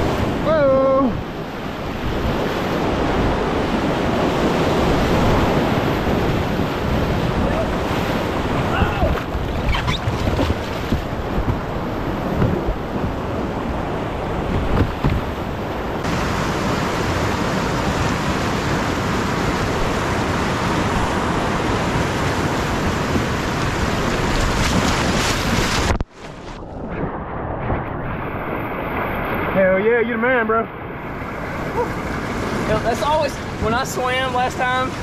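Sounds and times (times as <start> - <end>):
whitewater rapid rushing: 0.0 - 26.0, 28.7 - 35.0.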